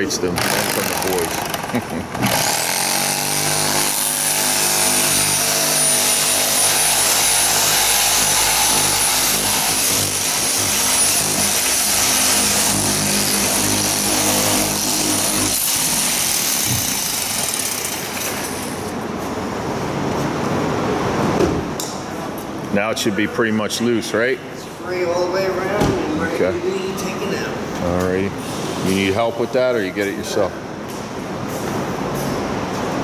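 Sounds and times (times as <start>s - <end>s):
power cutting tool whining: 0.4s - 18.7s.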